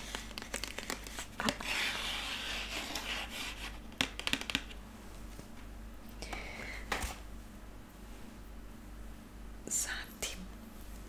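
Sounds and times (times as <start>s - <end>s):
plastic packaging rubbing: 0.0s - 3.8s.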